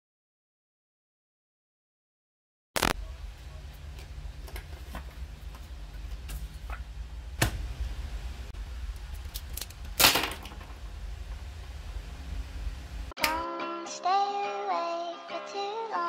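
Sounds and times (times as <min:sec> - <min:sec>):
steady low rumble: 0:02.8 - 0:13.2.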